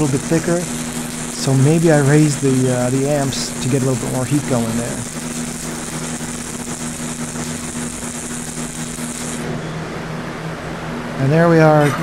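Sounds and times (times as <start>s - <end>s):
welding arc hissing: 0.0s - 9.6s
low hum: 0.0s - 11.2s.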